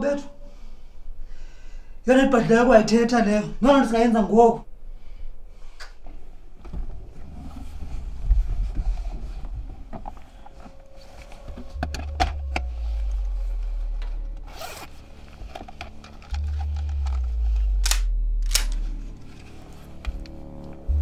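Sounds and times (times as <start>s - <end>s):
nylon jacket rustling: 13.6s - 16.5s
zip pulled: 14.4s - 18.8s
sharp clicks: 16.2s - 18.8s.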